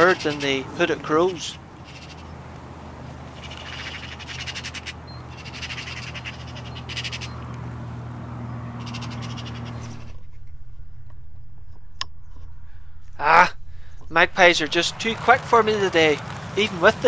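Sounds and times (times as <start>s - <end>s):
magpies chattering: 0.0s - 7.5s, 8.6s - 10.2s.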